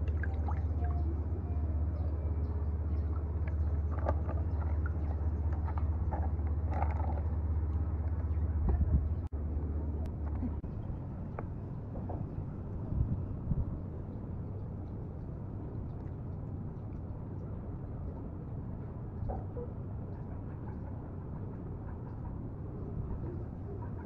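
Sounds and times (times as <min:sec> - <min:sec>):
water splashing in bowl: 0:00.0 - 0:01.0
steady low rumble: 0:00.0 - 0:24.0.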